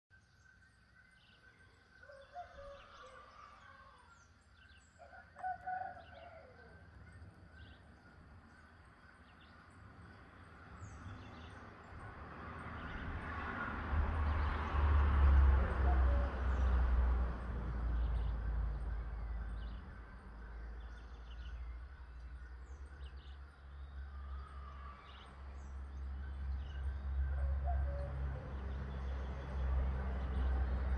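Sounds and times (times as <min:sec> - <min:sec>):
rooster crowing: 0:02.0 - 0:04.2, 0:05.0 - 0:06.8.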